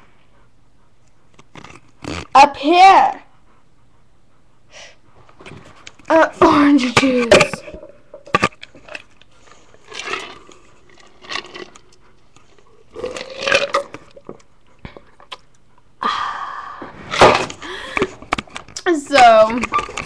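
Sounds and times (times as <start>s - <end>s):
person gulping: 7.6s - 8.5s, 12.9s - 15.4s.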